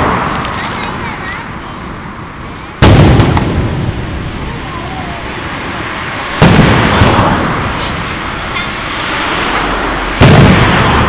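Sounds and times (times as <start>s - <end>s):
fireworks booming with echo: 2.5s - 11.0s.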